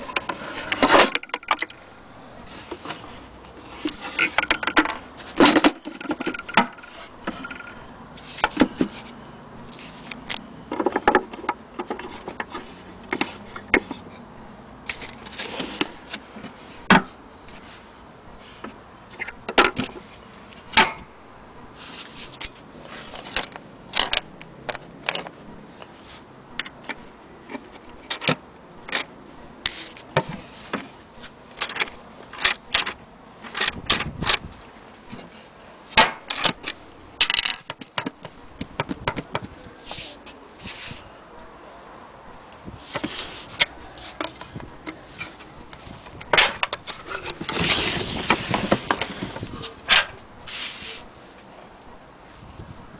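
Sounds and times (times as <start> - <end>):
metal and wood clicks and knocks: 0.0 - 1.8, 3.8 - 7.8, 23.3 - 25.4, 36.0 - 39.5, 43.0 - 47.6.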